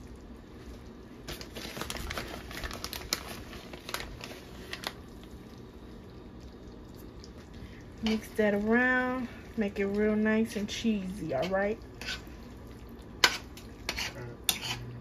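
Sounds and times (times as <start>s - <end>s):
cheese stirred into pot: 0.0s - 15.0s
steady low hum: 3.4s - 15.0s.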